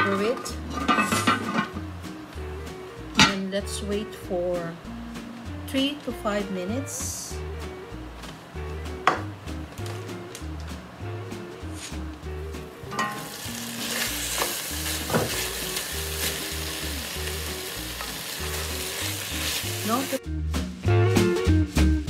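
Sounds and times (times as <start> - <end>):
chicken sizzling in pot: 12.8 - 20.2
pot lid clink: 12.9 - 13.3.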